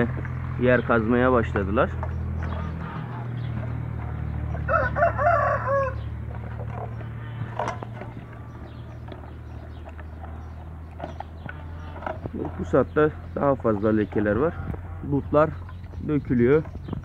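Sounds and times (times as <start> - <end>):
rooster crowing: 4.5 - 6.1.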